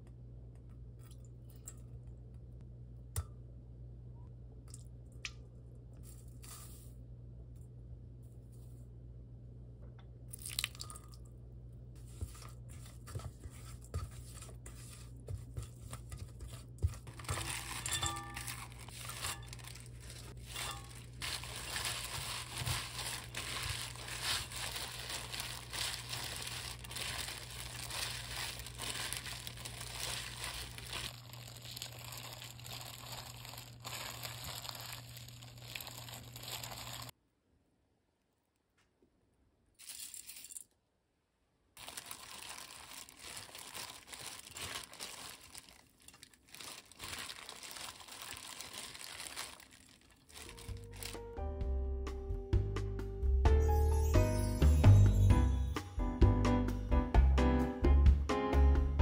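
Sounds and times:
low steady hum: 0.0s - 38.5s
glove and leaves crinkling: 14.1s - 37.1s, 41.8s - 51.4s.

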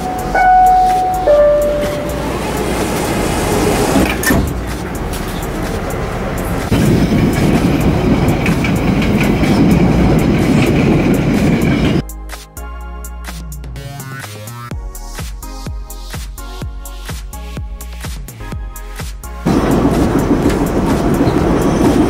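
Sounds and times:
door chime tone: 0.0s - 3.0s
train wheel and motor rumble: 0.0s - 12.0s, 19.4s - 22.0s.

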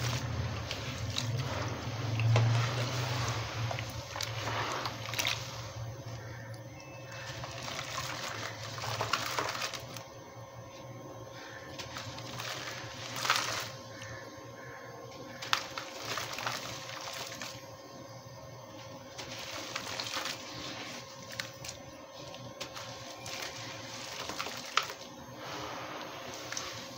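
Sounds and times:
cement cracking crunchily: 0.0s - 10.1s, 11.4s - 17.7s, 18.7s - 25.2s
water splashing and sloshing: 0.0s - 10.1s, 15.3s - 17.7s, 18.7s - 26.9s.

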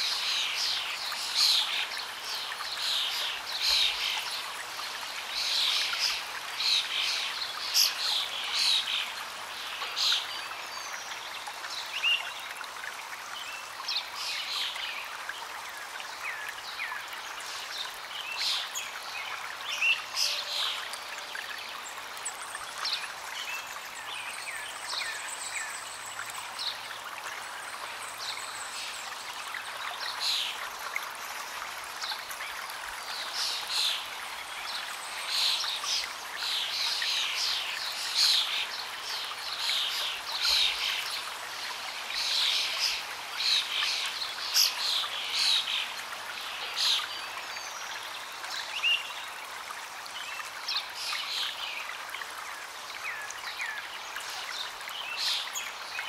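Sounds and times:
stream running over rocks: 0.0s - 56.0s.

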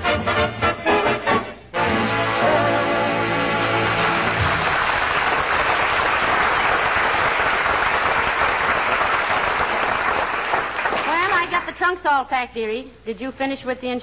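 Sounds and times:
brass swing band: 0.0s - 4.7s
audience applauding: 3.2s - 11.8s.

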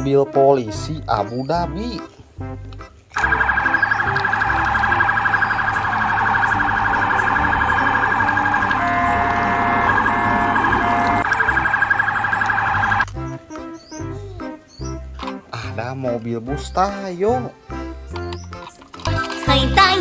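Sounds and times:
police siren warbling: 3.2s - 13.1s.

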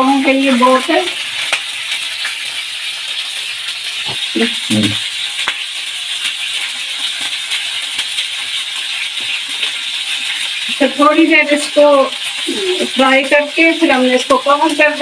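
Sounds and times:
fish sizzling in a pan: 0.0s - 15.0s
oil popping: 0.0s - 15.0s.

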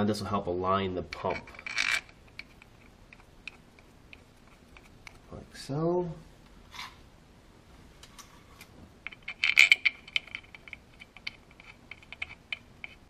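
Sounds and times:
small metal parts clinking: 1.2s - 2.8s, 9.1s - 13.0s.

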